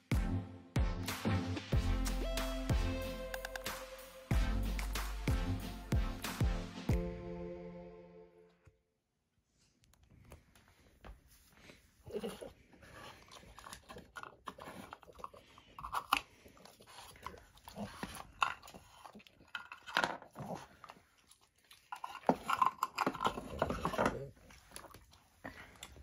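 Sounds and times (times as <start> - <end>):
dog crunching a treat: 12.3 - 26.0.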